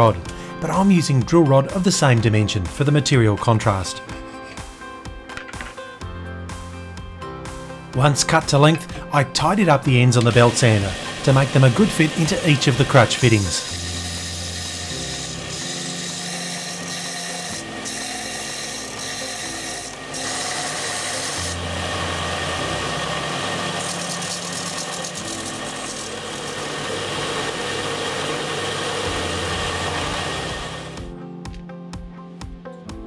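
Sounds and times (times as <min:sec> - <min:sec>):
belt sander grinding metal: 0:10.2 - 0:31.0.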